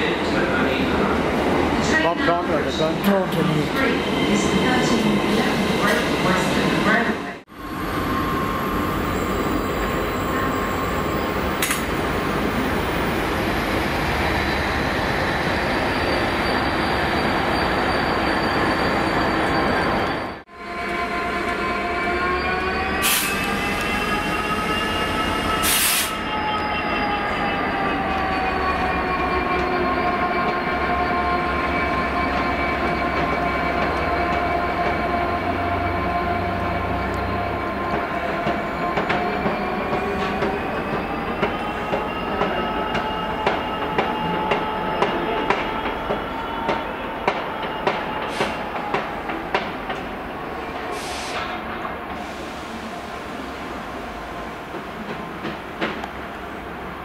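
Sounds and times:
diesel locomotive engine: 0:00.0 - 0:57.0.

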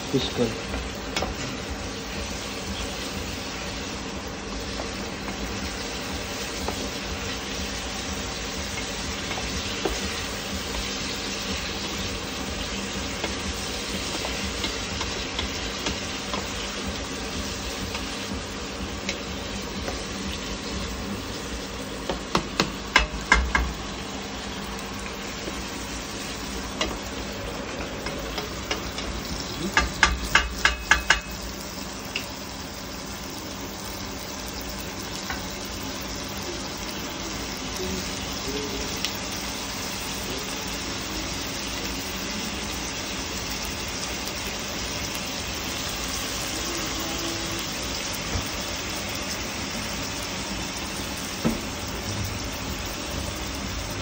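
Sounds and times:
onions sizzling in oil: 0:00.0 - 0:54.0
utensil knocking against pan: 0:22.0 - 0:23.8, 0:28.0 - 0:31.4.

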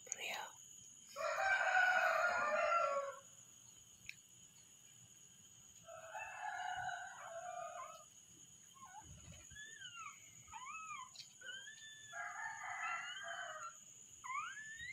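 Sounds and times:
rooster crowing: 0:01.2 - 0:03.3, 0:05.8 - 0:08.1, 0:12.0 - 0:14.4.

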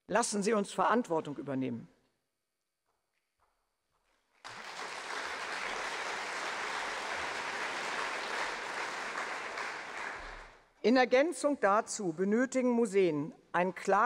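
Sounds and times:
audience applauding: 0:04.4 - 0:10.6.

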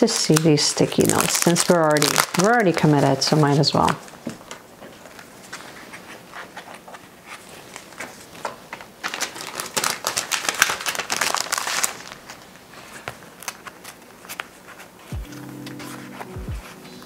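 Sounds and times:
packaging crinkling and rustling: 0:00.0 - 0:17.0
paper handling clicks: 0:07.7 - 0:14.9.

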